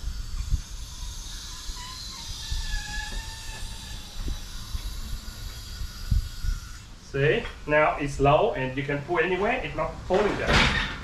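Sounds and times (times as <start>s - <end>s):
faint wavering squeal: 0.0s - 6.9s
steady hiss: 0.0s - 11.0s.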